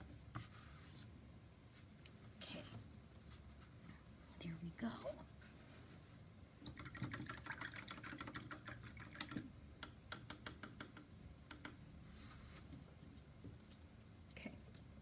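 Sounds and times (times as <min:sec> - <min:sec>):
soft rustle: 0:01.7 - 0:06.3.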